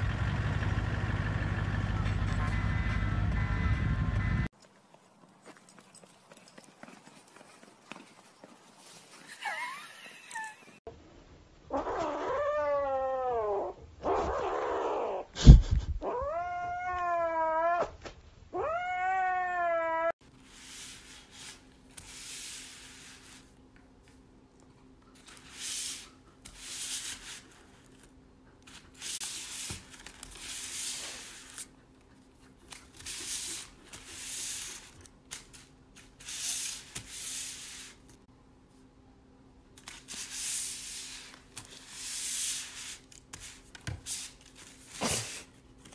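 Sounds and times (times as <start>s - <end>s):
cat yowling: 11.7s - 15.3s, 16.0s - 17.9s, 18.5s - 20.2s.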